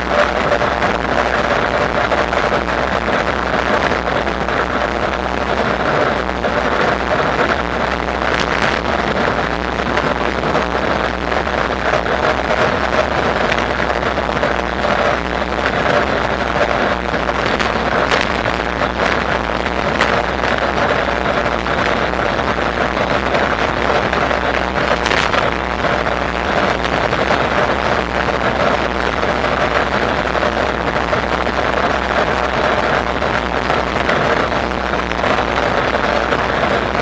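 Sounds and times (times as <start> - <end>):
low motor hum: 0.0 - 37.0
wind rush: 0.0 - 37.0.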